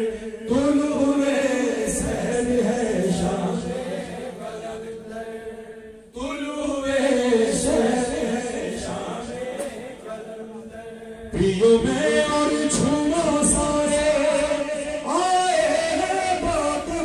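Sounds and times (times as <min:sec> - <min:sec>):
men chanting a devotional song: 0:00.0 - 0:17.0.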